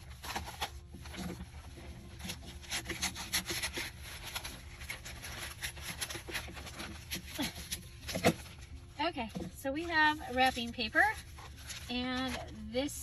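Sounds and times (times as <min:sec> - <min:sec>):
paper crackling and rustling: 0:00.0 - 0:13.0
scissors cutting paper: 0:02.2 - 0:08.5.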